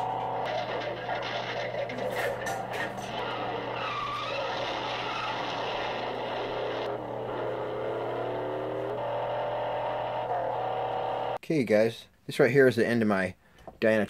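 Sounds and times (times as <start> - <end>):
muscle car engines revving: 0.0 - 11.4.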